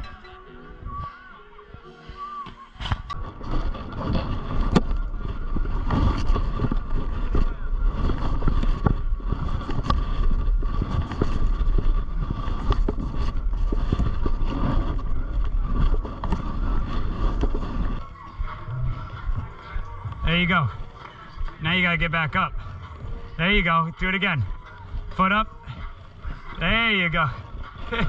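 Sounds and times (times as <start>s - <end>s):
camera handling rumble: 2.8s - 20.2s.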